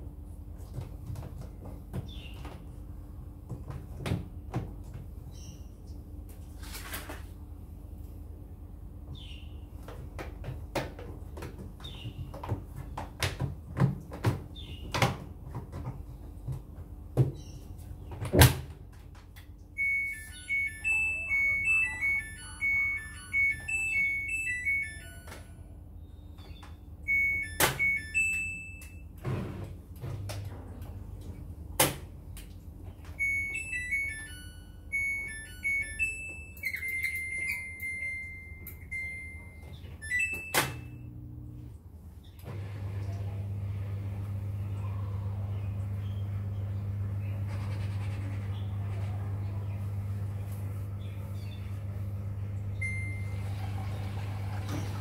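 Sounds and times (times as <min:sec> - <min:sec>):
washing machine beep tune: 0:19.7 - 0:29.6, 0:33.1 - 0:41.2, 0:50.7 - 0:55.0
button beeps: 0:19.8 - 0:25.4, 0:27.1 - 0:29.0, 0:33.2 - 0:34.3
long held beep tone: 0:19.8 - 0:25.5, 0:27.1 - 0:29.0, 0:33.2 - 0:40.6.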